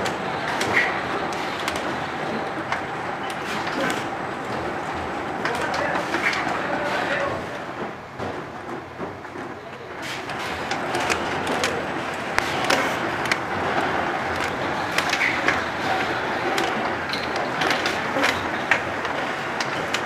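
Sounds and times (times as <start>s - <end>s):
bottling machine running: 0.0s - 8.1s, 9.5s - 20.0s
sharp clicks and knocks of bottles: 16.6s - 18.8s.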